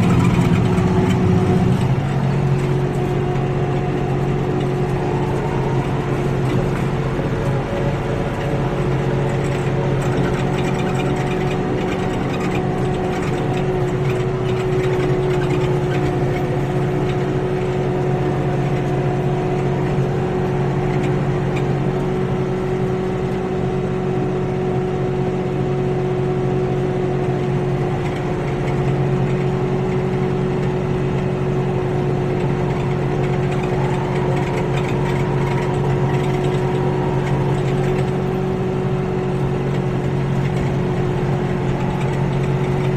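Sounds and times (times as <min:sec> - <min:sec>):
higher whine: 0:00.0 - 0:12.8, 0:31.3 - 0:42.9
rotary cutter mechanical whine: 0:00.0 - 0:23.4, 0:27.4 - 0:42.9
tractor diesel engine running: 0:00.0 - 0:42.9.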